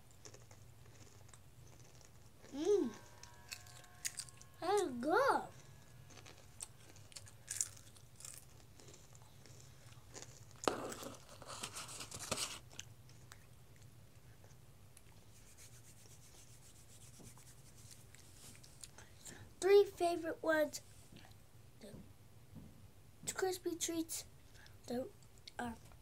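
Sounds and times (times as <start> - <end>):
potato chip being chewed: 0.0 - 4.6, 5.6 - 15.2
hand rubbing against microphone: 15.4 - 18.5.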